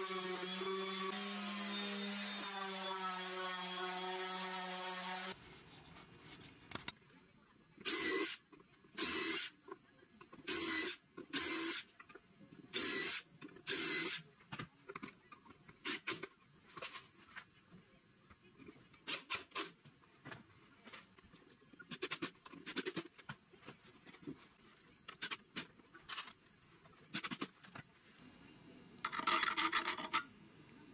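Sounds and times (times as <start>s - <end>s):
cordless drill bursts: 7.8s - 8.4s, 9.0s - 9.5s, 10.5s - 11.8s, 12.7s - 14.2s.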